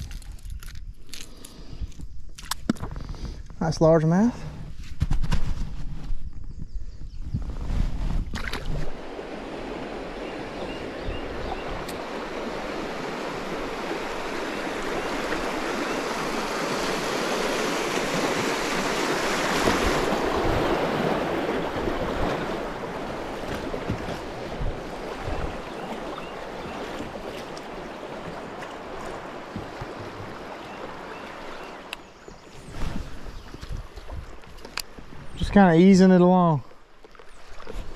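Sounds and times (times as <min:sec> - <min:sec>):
rushing river water: 0:08.4 - 0:37.9.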